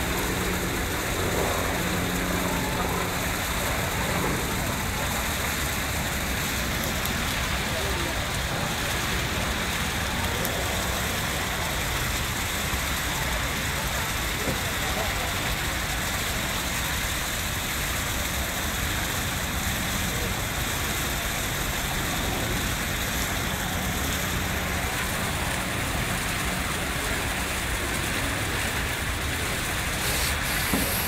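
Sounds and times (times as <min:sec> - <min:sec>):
even hiss: 0:19.2 - 0:31.0.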